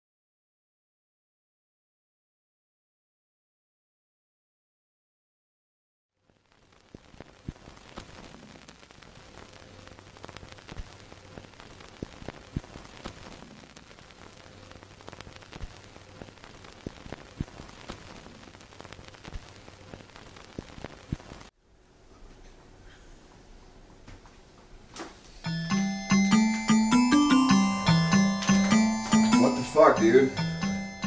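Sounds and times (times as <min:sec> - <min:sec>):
film hiss: 0:06.2 - 0:31.0
pops and clicks: 0:06.8 - 0:09.4, 0:10.2 - 0:13.9, 0:15.0 - 0:21.5.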